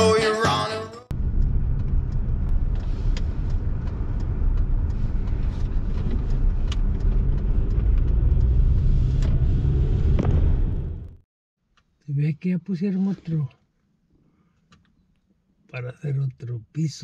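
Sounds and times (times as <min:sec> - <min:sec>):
moving car rumble: 0:01.1 - 0:11.3.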